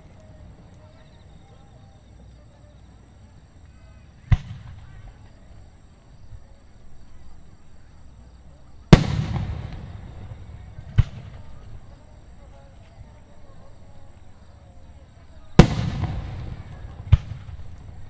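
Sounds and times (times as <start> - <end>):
faint crowd chatter: 0.0 - 18.0
fireworks booming: 4.2 - 5.5, 8.9 - 12.0, 15.6 - 18.0.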